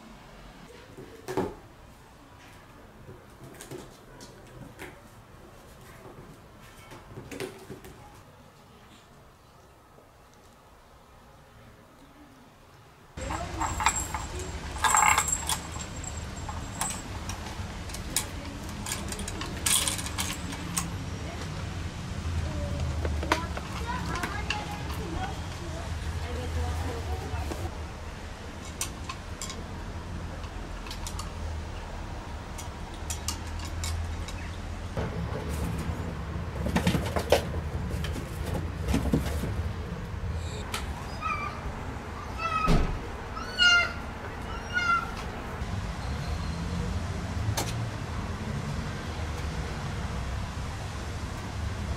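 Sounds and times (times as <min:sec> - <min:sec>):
bead chain and toys jingling: 0:13.2 - 0:17.3
kittens' paws clicking and scuffing: 0:13.2 - 0:21.6
knocks and rustles: 0:35.0 - 0:39.9.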